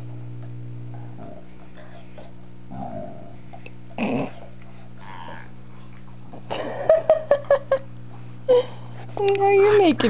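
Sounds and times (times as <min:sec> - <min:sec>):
dog grunting: 0:01.1 - 0:05.6.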